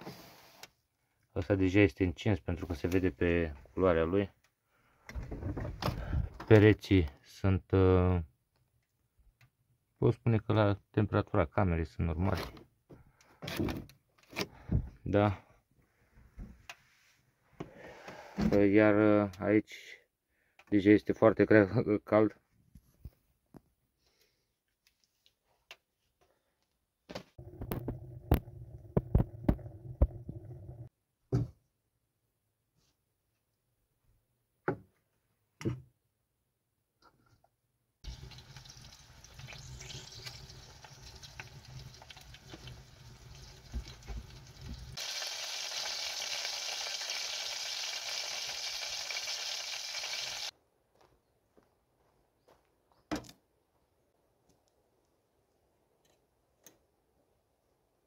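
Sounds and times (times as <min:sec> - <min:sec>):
meat sizzling in fat: 0:38.1 - 0:50.5.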